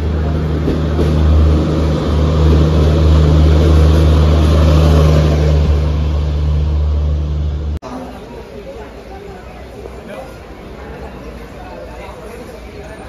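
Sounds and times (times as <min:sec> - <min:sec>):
loud low drone of power car: 0:00.0 - 0:07.8
train coaches rolling past: 0:00.0 - 0:13.0.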